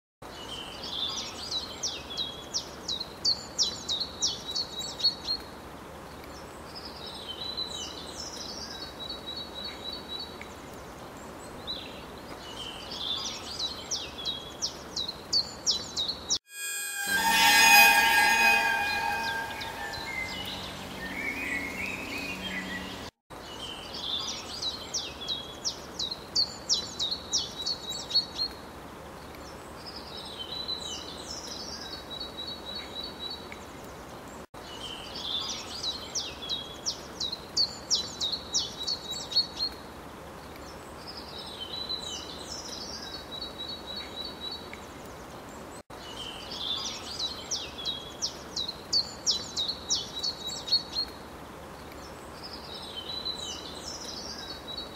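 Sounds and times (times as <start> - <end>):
birdsong with buzzy trill: 16.5 - 23.1.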